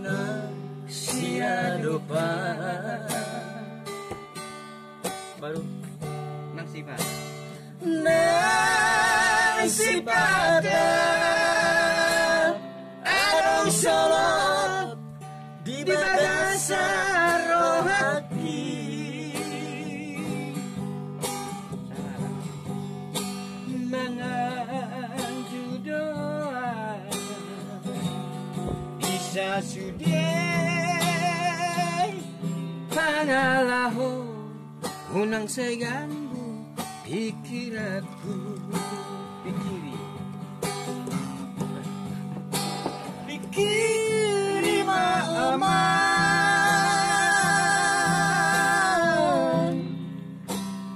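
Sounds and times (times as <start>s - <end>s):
man singing with vibrato: 0.0s - 3.9s, 7.6s - 20.8s, 23.6s - 28.0s, 28.8s - 40.0s, 43.2s - 50.2s
strummed acoustic guitar: 0.0s - 50.9s.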